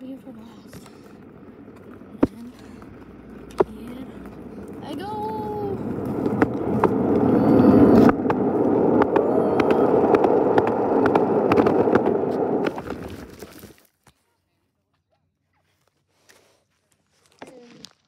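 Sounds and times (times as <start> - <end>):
wheels clacking over joints: 0.0 - 13.7
skateboard wheels rumbling on concrete: 0.0 - 13.8.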